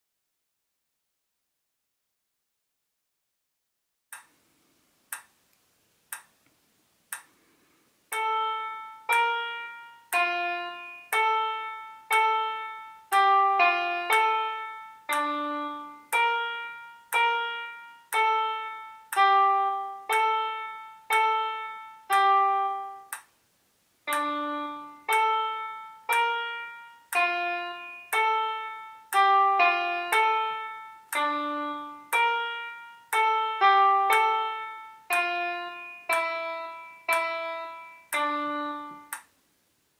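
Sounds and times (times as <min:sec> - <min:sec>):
count-in clicks: 0:08.1 - 0:23.4, 0:24.1 - 0:39.4
piano app slow melody: 0:08.1 - 0:23.4, 0:24.0 - 0:39.4.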